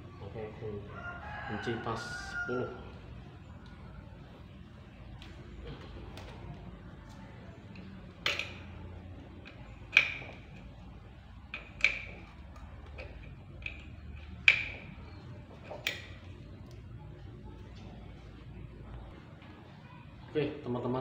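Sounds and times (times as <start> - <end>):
spanner clinking on metal nut: 8.2 - 8.8, 11.5 - 14.8.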